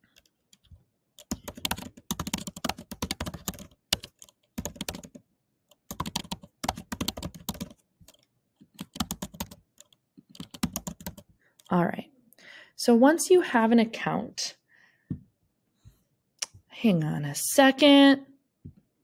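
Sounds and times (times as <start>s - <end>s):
computer keyboard typing: 0.0s - 11.7s.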